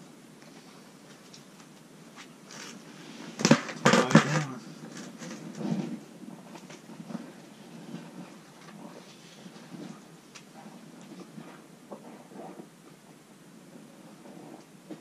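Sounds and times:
sharp knocks and clatters: 3.3s - 8.1s.

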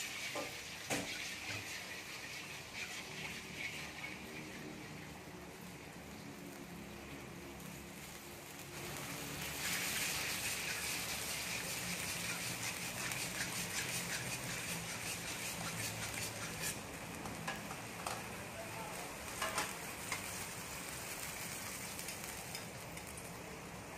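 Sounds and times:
metal spatula stirring: 0.0s - 4.7s, 9.4s - 16.9s
sauce sizzling in a wok: 0.0s - 23.9s.

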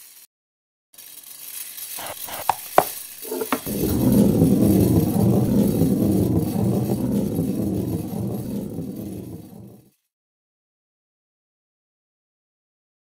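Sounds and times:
loud low rumble: 3.6s - 9.9s.

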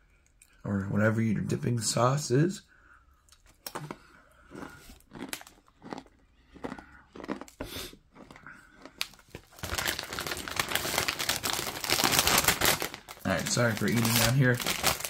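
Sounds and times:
crunching on crisp snack: 3.3s - 15.0s
plastic snack bag crinkling: 8.2s - 15.0s.

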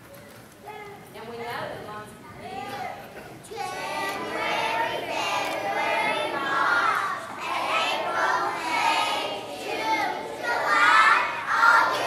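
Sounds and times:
children singing in unison: 3.5s - 12.0s.

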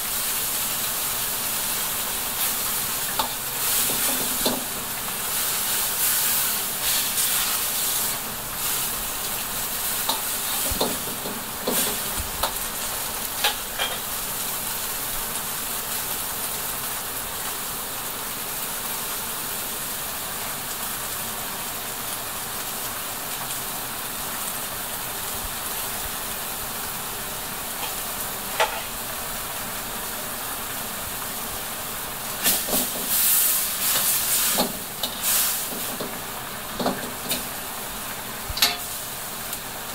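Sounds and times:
broth boiling with sizzling hiss: 0.0s - 39.9s
wok clanking: 2.3s - 14.2s, 27.8s - 29.2s, 32.4s - 37.5s, 38.5s - 39.1s
metal ladle scraping wok: 27.8s - 28.9s.

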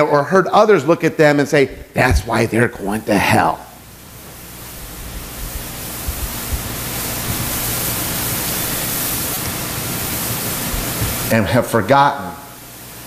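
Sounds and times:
steady hiss: 0.0s - 13.0s
soft low thumps: 4.8s - 7.5s.

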